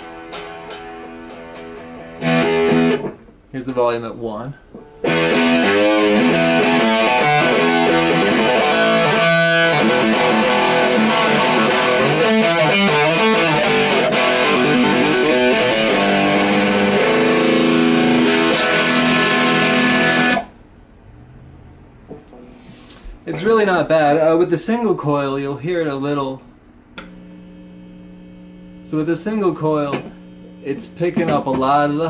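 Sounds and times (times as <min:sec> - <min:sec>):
distorted electric guitar: 0:00.0 - 0:03.4, 0:04.8 - 0:20.6, 0:27.1 - 0:32.0
faint amp hum: 0:00.0 - 0:32.0.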